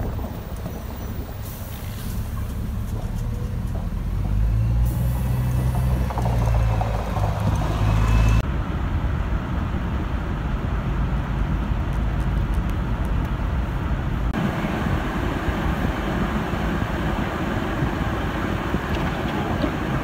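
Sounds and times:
bus diesel engine droning: 0:00.0 - 0:11.9, 0:12.8 - 0:20.0
car road rumble: 0:00.0 - 0:20.0
outdoor wind noise: 0:00.0 - 0:20.0.

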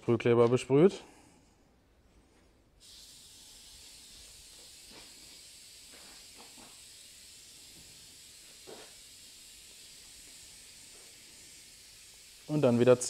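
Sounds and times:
aerosol can spraying: 0:02.8 - 0:13.0.

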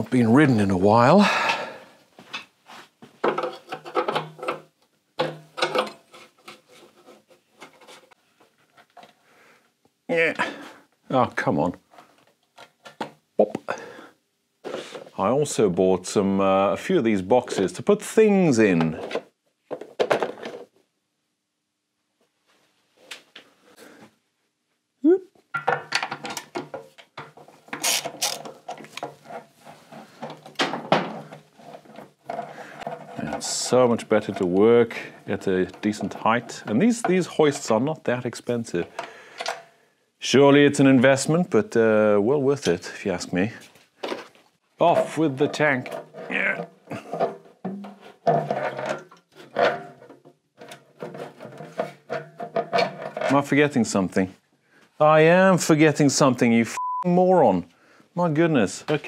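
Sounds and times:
parts rubbing and scraping squeakily: 0:27.3 - 0:37.8, 0:44.2 - 0:53.7.

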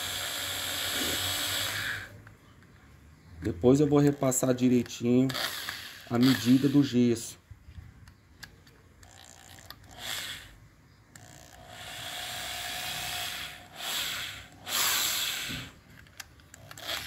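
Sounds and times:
power drill whining at low speed: 0:00.0 - 0:02.2, 0:05.3 - 0:07.3, 0:09.0 - 0:15.8, 0:16.5 - 0:17.0.

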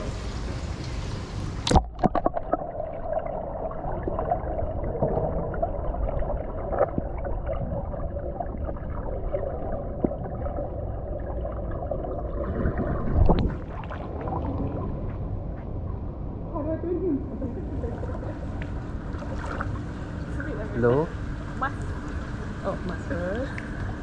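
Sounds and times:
underwater low hum: 0:00.0 - 0:24.0
underwater clicks and bubbling: 0:01.6 - 0:16.1, 0:21.7 - 0:24.0
water splash: 0:12.3 - 0:15.0.

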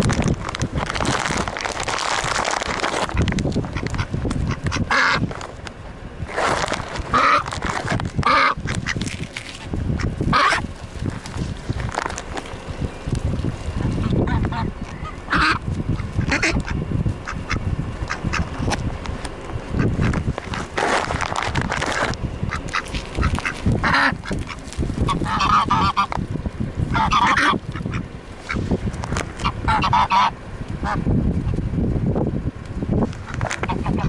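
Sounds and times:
ducks quacking: 0:03.1 - 0:05.3, 0:07.0 - 0:07.5, 0:08.2 - 0:09.0, 0:10.0 - 0:10.7, 0:13.9 - 0:18.6, 0:19.7 - 0:20.8, 0:22.5 - 0:26.2, 0:26.9 - 0:28.6, 0:29.4 - 0:31.0, 0:33.3 - 0:34.0
geese honking: 0:03.1 - 0:05.3, 0:07.0 - 0:07.6, 0:08.2 - 0:09.0, 0:10.0 - 0:10.7, 0:13.9 - 0:18.6, 0:22.5 - 0:26.2, 0:26.9 - 0:28.6, 0:29.4 - 0:31.0, 0:33.3 - 0:34.0.

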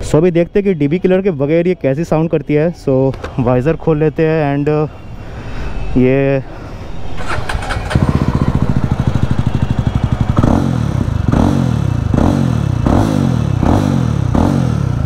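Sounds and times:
engine revving in throttle blips: 0:07.2 - 0:15.0
motorcycle engine idling: 0:07.5 - 0:15.0.

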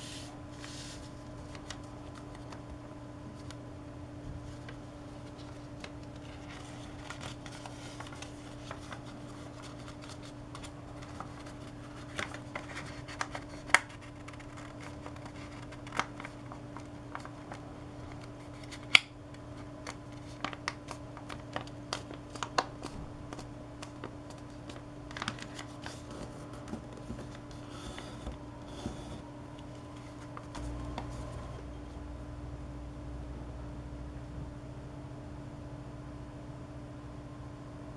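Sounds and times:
paper folding and rustling: 0:00.0 - 0:02.7, 0:04.4 - 0:31.5
steady low hum: 0:00.0 - 0:37.9.

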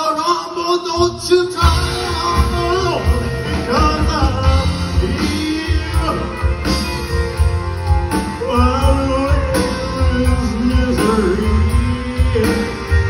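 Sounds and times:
man singing over speakers: 0:00.0 - 0:06.8, 0:08.2 - 0:13.0
rock band playing: 0:00.8 - 0:13.0.

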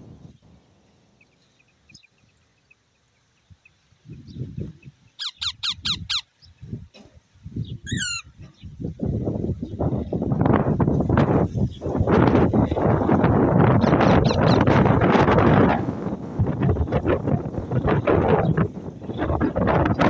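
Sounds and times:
gusty rumble on the microphone: 0:03.5 - 0:05.1, 0:06.4 - 0:20.0
parakeets screeching: 0:05.2 - 0:06.3, 0:07.8 - 0:08.4, 0:13.8 - 0:14.7.

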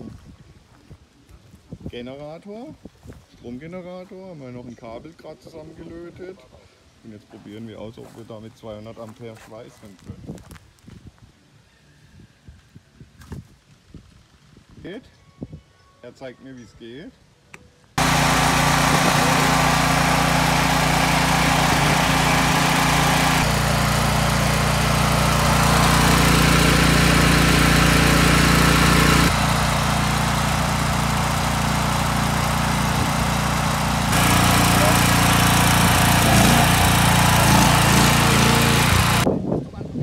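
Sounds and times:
generator engine running: 0:18.0 - 0:39.3.

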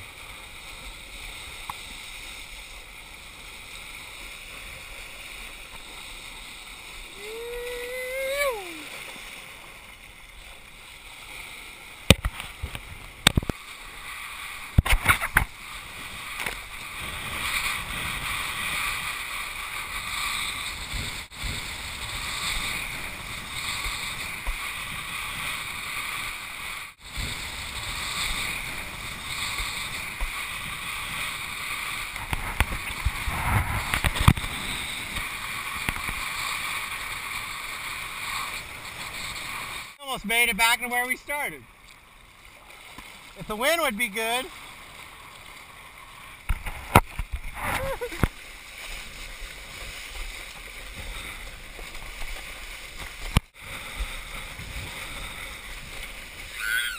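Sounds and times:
rushing water and spray: 0:00.0 - 0:56.9
sharp knocks and splashes: 0:12.0 - 0:13.6, 0:14.7 - 0:15.6, 0:46.4 - 0:48.9.

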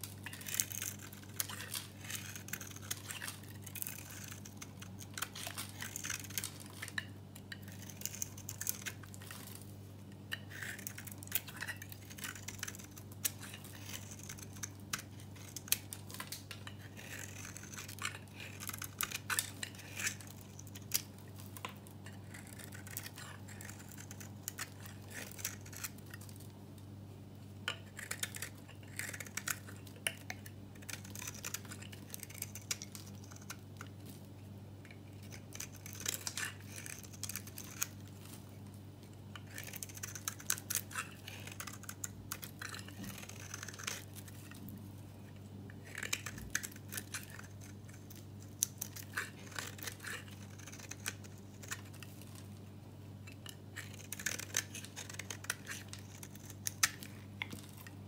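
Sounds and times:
knife shaving dry soap: 0:00.0 - 0:26.5, 0:27.7 - 0:58.0.

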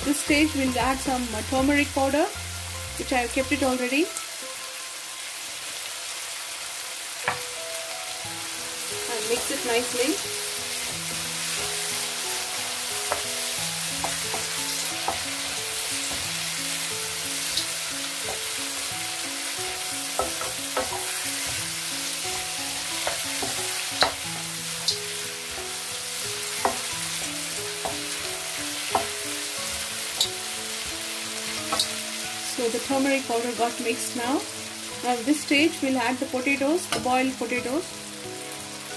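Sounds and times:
food sizzling in oil: 0:00.0 - 0:38.9
spatula knocking against pan: 0:20.2 - 0:21.1.

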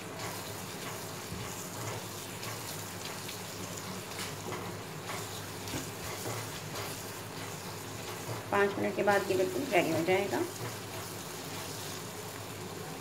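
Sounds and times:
eggs sizzling in a pan: 0:00.0 - 0:13.0
spatula scraping a pan: 0:00.2 - 0:12.1.

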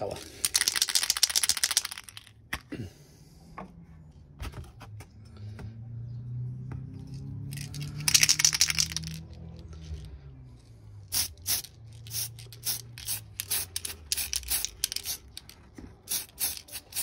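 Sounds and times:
spray can rattling: 0:00.0 - 0:02.4, 0:07.5 - 0:09.4, 0:11.1 - 0:17.0.

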